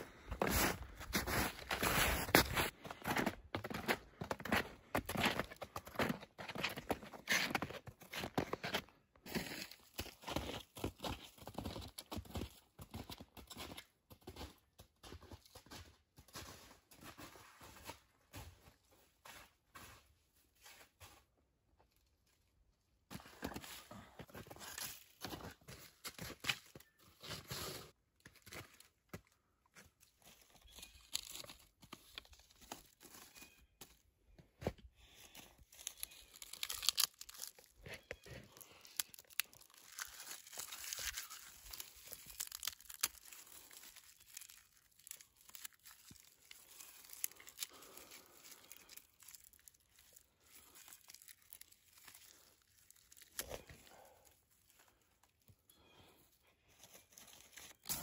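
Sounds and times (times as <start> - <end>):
bark tearing and crackling: 35.7 - 55.0.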